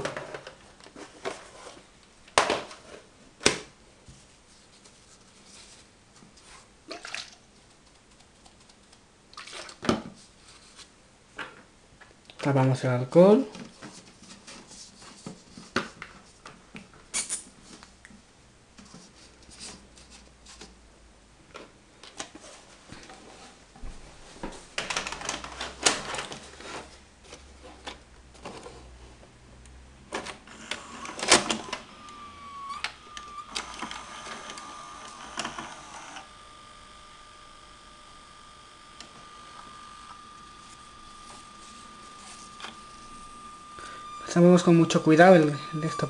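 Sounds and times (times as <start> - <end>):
steady high whine: 30.4 - 46.0.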